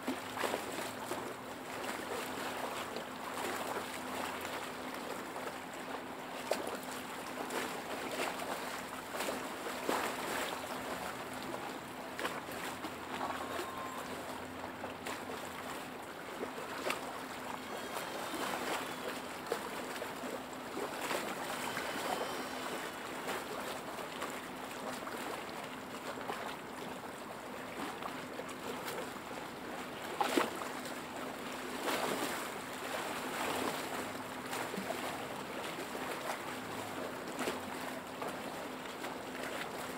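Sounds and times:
water slapping: 0:00.0 - 0:26.6
lake waves lapping: 0:00.0 - 0:39.9.

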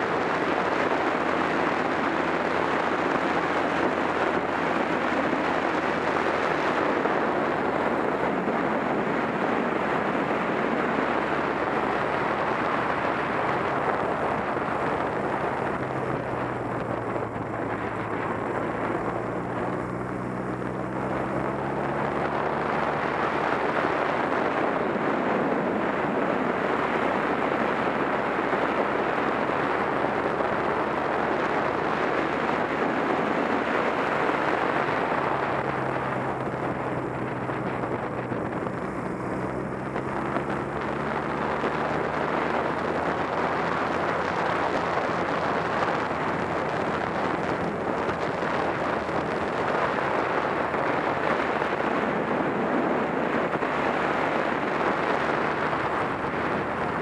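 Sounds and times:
motorcycle engine hum: 0:00.0 - 0:57.0
wind rushing over microphone: 0:00.0 - 0:57.0.

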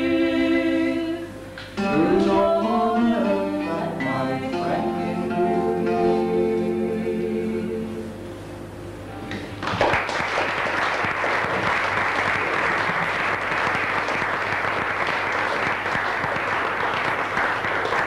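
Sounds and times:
audience applauding: 0:09.6 - 0:18.0.

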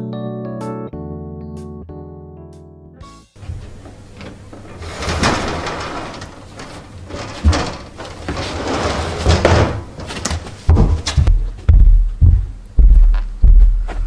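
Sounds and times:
cupboard door opening and shutting: 0:03.4 - 0:11.2
door rubbing and knocking: 0:03.4 - 0:11.4
low thuds: 0:10.7 - 0:14.0.

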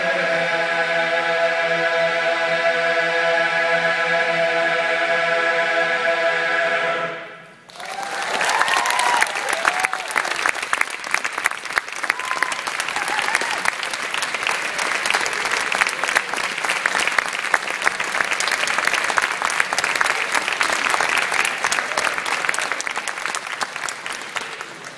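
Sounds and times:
audience applauding: 0:07.7 - 0:24.9.

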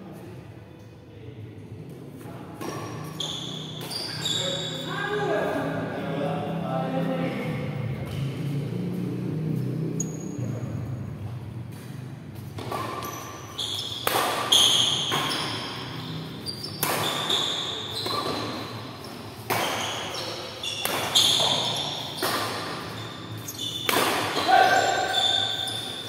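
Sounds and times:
rackets hitting shuttlecock: 0:02.6 - 0:04.2, 0:11.7 - 0:26.0.

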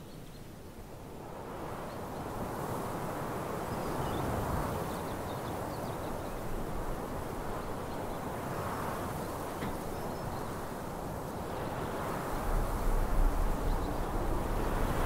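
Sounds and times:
low rumbling noise: 0:12.4 - 0:15.0.

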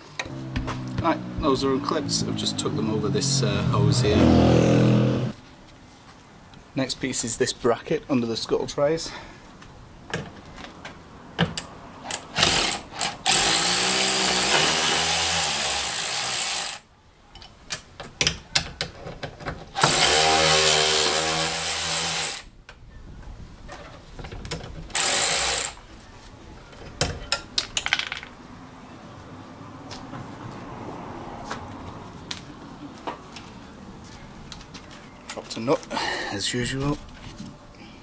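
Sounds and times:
cordless power tool spinning bolts: 0:12.1 - 0:16.8, 0:19.8 - 0:22.5, 0:24.9 - 0:25.8.

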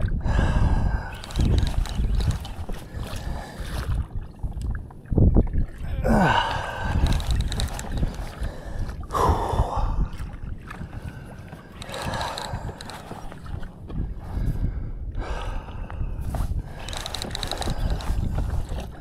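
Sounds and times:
water sloshing against hull: 0:00.0 - 0:19.0
wind buffeting microphone: 0:00.0 - 0:19.0
man breathing hard: 0:00.2 - 0:01.2, 0:06.0 - 0:07.2, 0:08.3 - 0:10.2, 0:14.2 - 0:16.8.

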